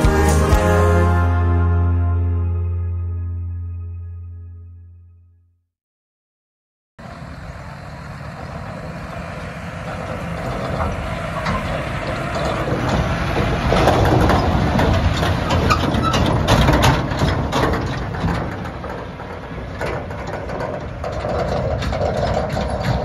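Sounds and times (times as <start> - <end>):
tractor engine running: 7.0 - 23.0
knocks and rattles: 9.9 - 23.0.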